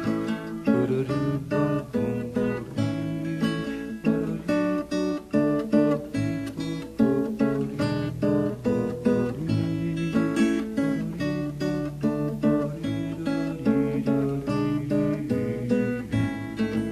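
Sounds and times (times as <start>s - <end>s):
acoustic guitar plucked chords: 0.0s - 16.9s.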